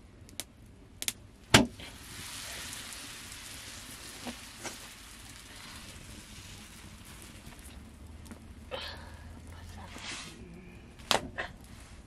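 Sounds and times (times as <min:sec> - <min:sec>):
dough slapped onto griddle: 0:01.0 - 0:01.8
dough sizzling on hot iron: 0:01.0 - 0:12.0.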